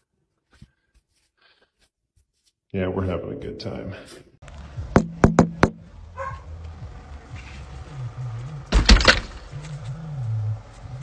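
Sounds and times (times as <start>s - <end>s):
low wavering animal sound: 9.5s - 11.0s.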